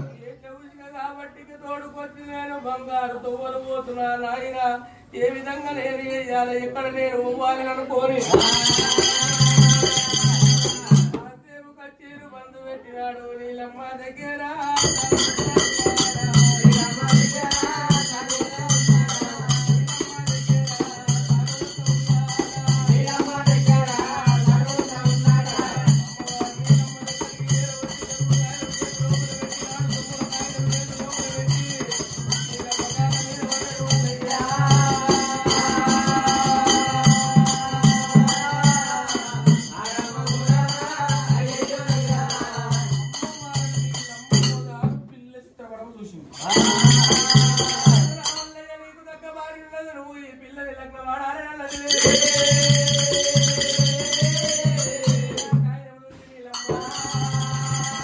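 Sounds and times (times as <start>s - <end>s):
bright jingling rattle: 8.2s - 11.2s, 46.4s - 48.5s
drum beating steadily: 8.2s - 11.3s, 14.7s - 45.2s, 46.4s - 48.6s, 51.7s - 55.8s, 56.5s - 58.0s.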